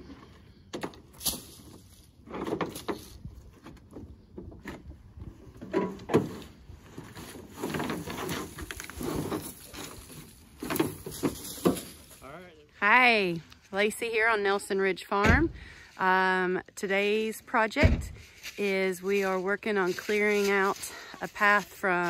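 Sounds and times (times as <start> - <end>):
pine boughs rustling and scraping: 1.1 - 13.0, 18.2 - 22.0.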